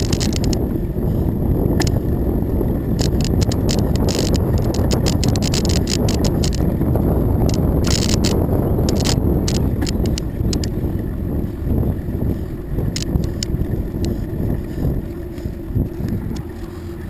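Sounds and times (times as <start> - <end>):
rapid clicking and rattling: 0.0 - 0.6, 3.0 - 6.7, 7.4 - 10.7, 12.9 - 14.2
bicycle tyres on asphalt: 0.0 - 17.0
wind on microphone: 0.0 - 17.0.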